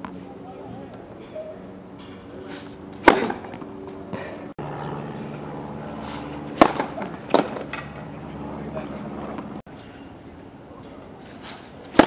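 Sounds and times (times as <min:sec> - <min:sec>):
tennis racket hitting ball: 0:03.0 - 0:03.6, 0:06.1 - 0:08.0.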